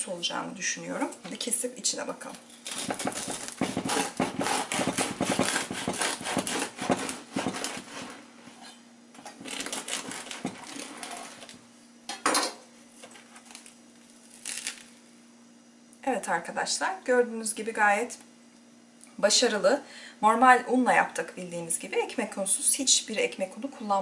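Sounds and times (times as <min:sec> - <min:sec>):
bread knife sawing through crust: 0:02.7 - 0:08.2, 0:09.4 - 0:11.3.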